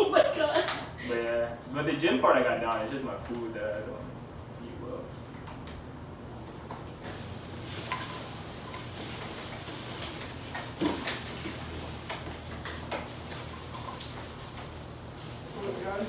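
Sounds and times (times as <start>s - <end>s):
steady low hum: 0.0s - 10.0s
rustling packaging: 7.0s - 16.0s.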